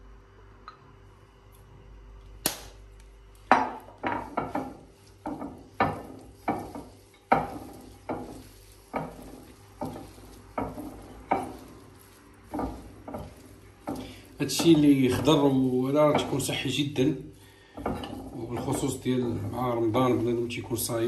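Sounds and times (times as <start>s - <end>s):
hands squelching vegetables in bowl: 4.5s - 21.0s.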